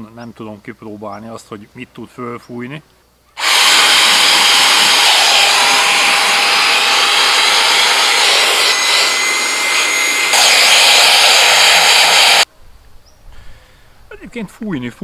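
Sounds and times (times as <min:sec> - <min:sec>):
air pump motor whirring: 0:03.4 - 0:12.5
air rushing from nozzle: 0:03.4 - 0:12.5.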